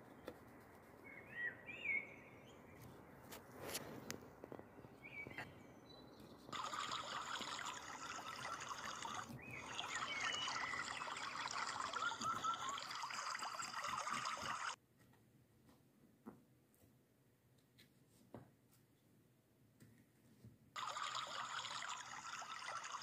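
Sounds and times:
water trickling: 6.5s - 14.8s, 20.8s - 23.0s.

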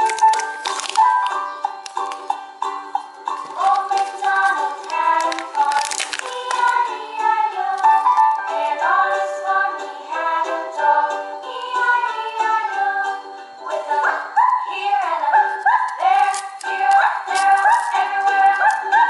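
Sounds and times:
music with high sung melody: 0.0s - 19.0s.

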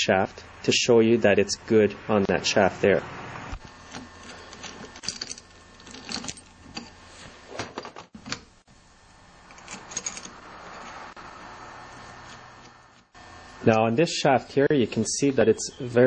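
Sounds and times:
metal parts clicking and clinking: 3.9s - 7.0s, 9.5s - 11.0s.

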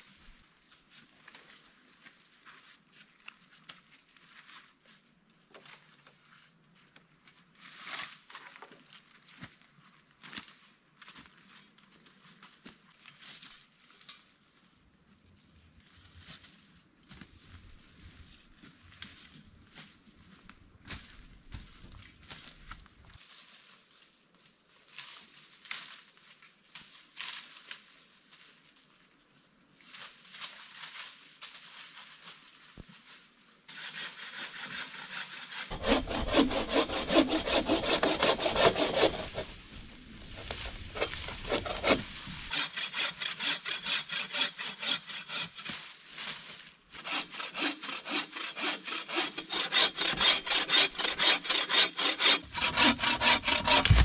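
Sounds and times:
bow saw cutting log: 33.7s - 45.8s, 46.9s - 54.0s.

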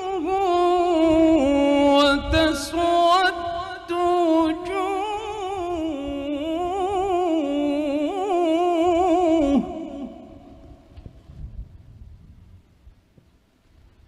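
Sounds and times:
man reciting through microphone: 0.0s - 11.0s.

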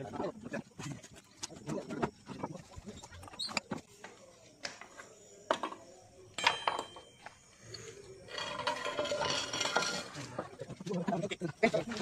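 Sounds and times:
clay roof tiles clinking: 4.6s - 12.0s
tiles rattling and scraping: 8.3s - 12.0s.

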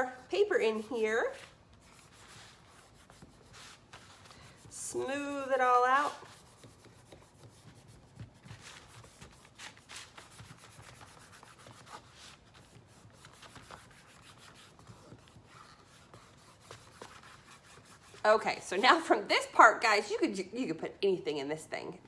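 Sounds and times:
fingers rubbing paper: 1.3s - 18.3s.

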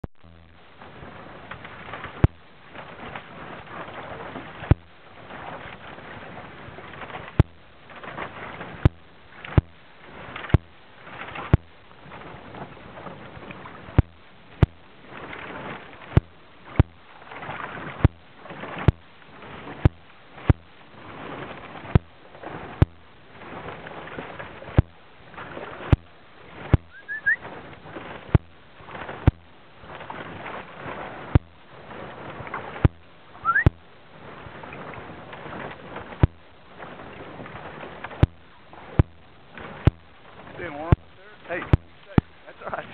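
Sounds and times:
paddle swishing water: 0.6s - 42.9s
rising chirps: 26.9s - 27.4s.

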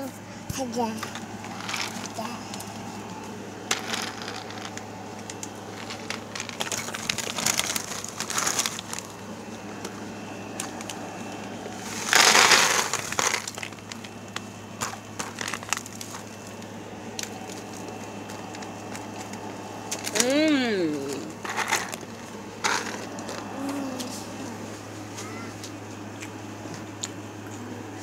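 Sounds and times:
pretzels rattling: 1.1s - 2.9s, 3.6s - 9.2s, 11.8s - 20.4s, 21.0s - 24.1s
plastic snack bag crinkling: 1.4s - 2.7s, 3.7s - 9.2s, 11.8s - 20.2s, 21.3s - 23.9s.

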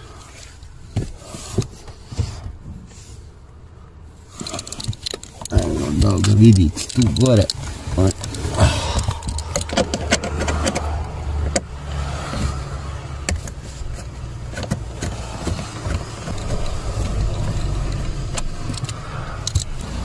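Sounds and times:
steady low rumble: 13.7s - 20.0s.

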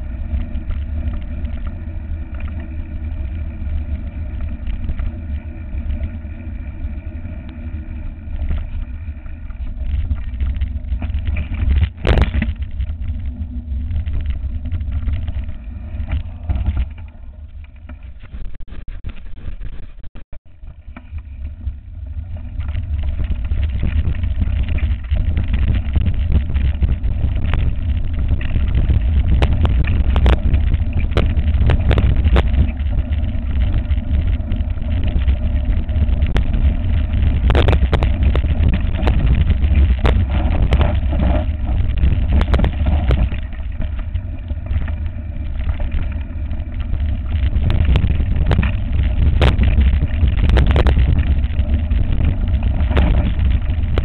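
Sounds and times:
wind buffeting microphone: 0.0s - 17.6s, 21.2s - 54.0s
bike knocking and rattling over stones: 0.0s - 54.0s.

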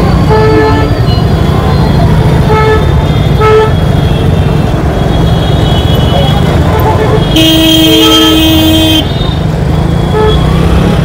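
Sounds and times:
idling engines rumble: 0.0s - 11.0s
vehicle horn beeps: 7.2s - 9.4s, 10.0s - 10.5s.

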